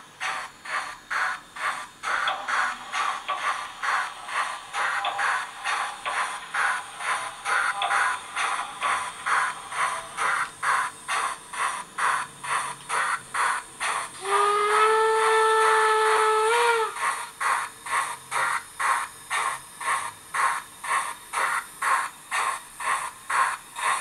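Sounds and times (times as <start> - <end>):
steam locomotive chuffing: 0.0 - 24.0
steam whistle blast: 14.2 - 17.0.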